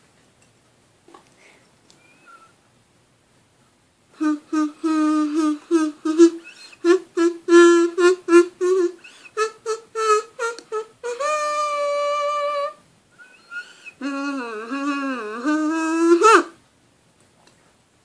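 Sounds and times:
kazoo buzzy notes: 4.1 - 16.6.

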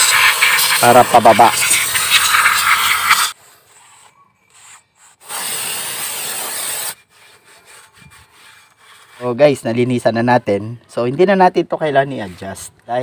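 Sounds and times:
aerosol spray hissing: 0.0 - 3.4, 5.2 - 7.0.

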